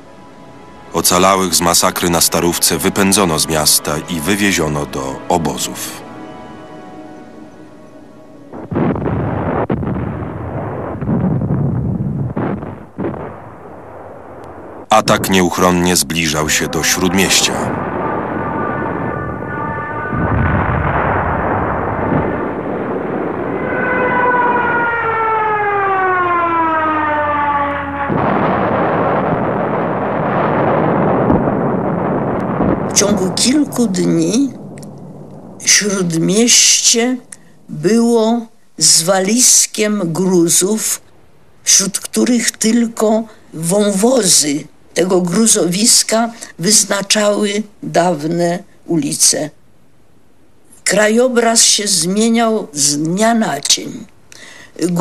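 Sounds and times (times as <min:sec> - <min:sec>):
soft music: 0:00.0 - 0:08.8, 0:15.5 - 0:20.1
sharp blasts: 0:08.4 - 0:36.8
rumbling explosions: 0:08.4 - 0:38.2
gunfire: 0:08.5 - 0:15.3
diving aircraft whistle: 0:16.5 - 0:20.9, 0:23.4 - 0:28.2.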